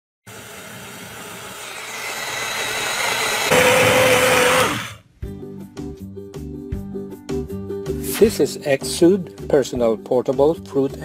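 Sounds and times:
blender motor whining: 0:00.3 - 0:05.0.

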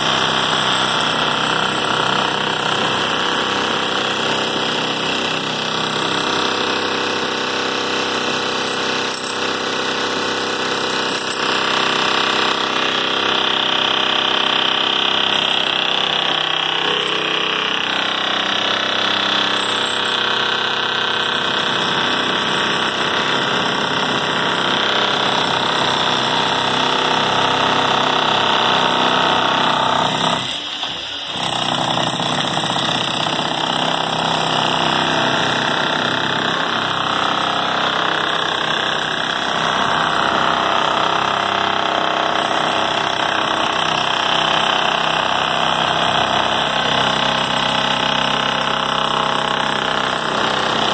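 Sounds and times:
demolition hammer chiselling concrete: 0:00.0 - 0:50.9.

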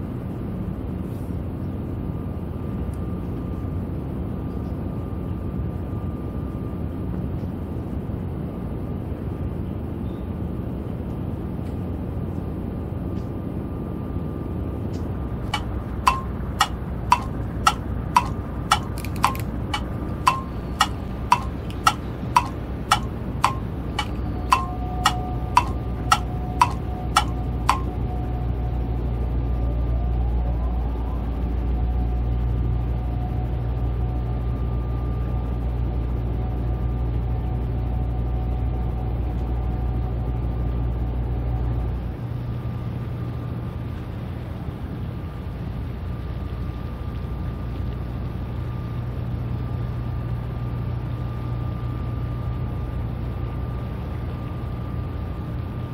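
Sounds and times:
sharp ticks: 0:15.6 - 0:27.9.

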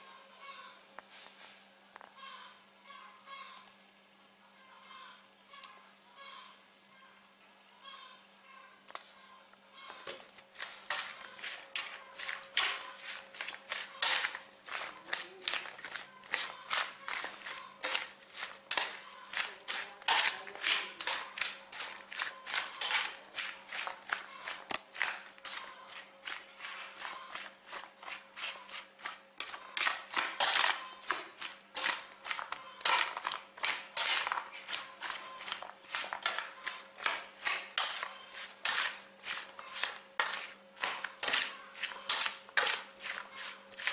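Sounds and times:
metal spoon scraping metal tray: 0:10.5 - 0:43.9.

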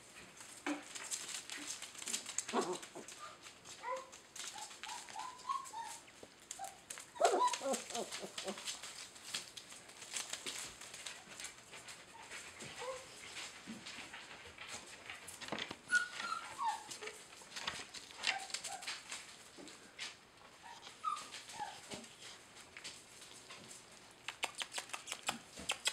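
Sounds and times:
scratching and rustling on paper: 0:00.0 - 0:25.9
puppies yipping and whimpering: 0:03.8 - 0:08.7, 0:15.9 - 0:17.2, 0:20.6 - 0:22.0.

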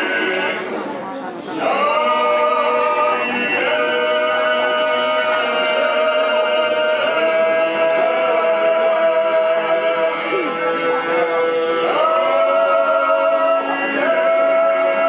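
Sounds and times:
choir chanting a cappella: 0:00.0 - 0:00.9, 0:01.6 - 0:15.0.

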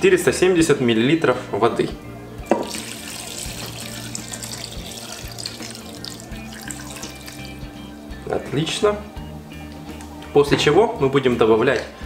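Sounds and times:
water pouring into a bowl: 0:02.6 - 0:07.9.

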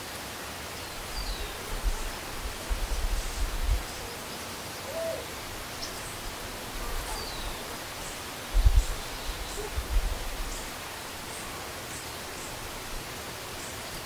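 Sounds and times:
steady hiss: 0:00.0 - 0:14.0
hoot-like animal call: 0:04.8 - 0:05.3.

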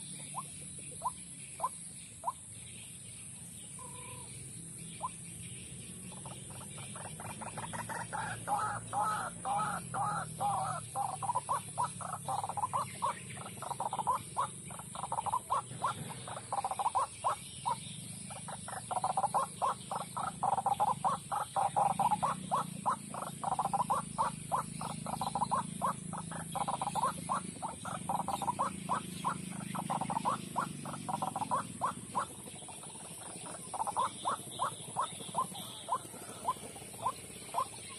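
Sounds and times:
waterhen rapid repeated calls: 0:00.0 - 0:02.4, 0:06.1 - 0:37.9.

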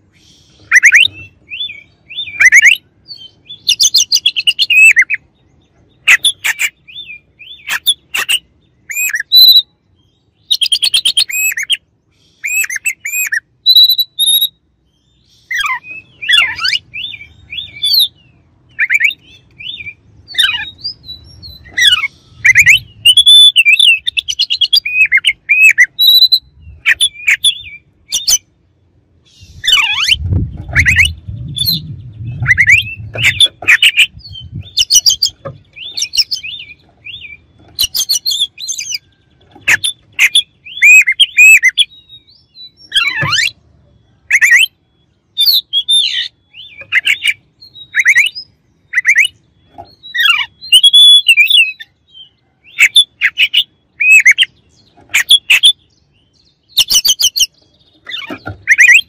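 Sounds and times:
bird singing chattering runs: 0:29.3 - 0:59.0.

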